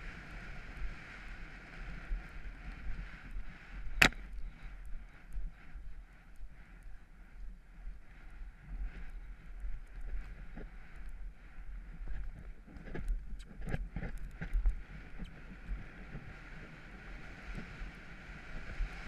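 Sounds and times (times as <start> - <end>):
wind buffeting microphone: 0.0 - 19.0
horse hoofbeats galloping on turf: 4.9 - 19.0.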